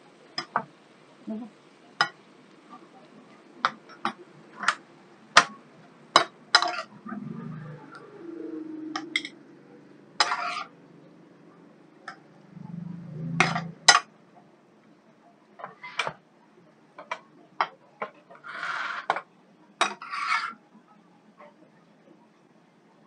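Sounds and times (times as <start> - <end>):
spatula clacking on frying pan: 0.4 - 0.7, 2.0 - 2.2, 3.6 - 6.9
food scraped onto ceramic plate: 10.2 - 10.8, 18.3 - 19.2, 19.8 - 20.6.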